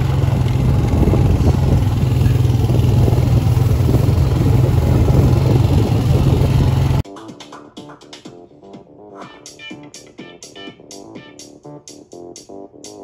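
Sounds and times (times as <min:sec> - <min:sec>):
quad engine droning: 0:00.0 - 0:07.0.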